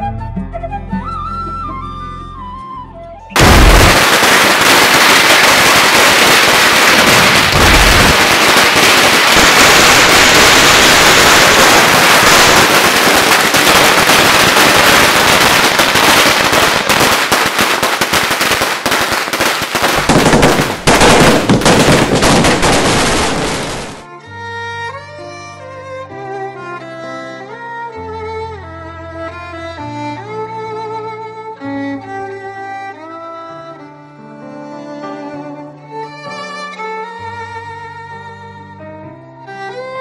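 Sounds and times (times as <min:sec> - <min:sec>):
firecrackers crackling: 0:03.4 - 0:24.1.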